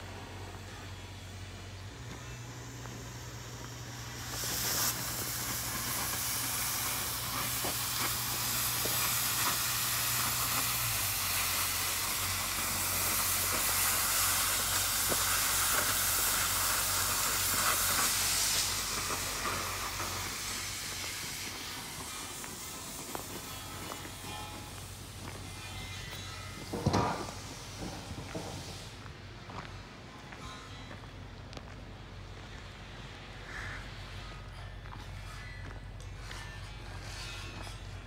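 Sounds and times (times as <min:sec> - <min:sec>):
gas cutting torch hissing: 0:00.0 - 0:29.1
low steady hum: 0:00.0 - 0:38.0.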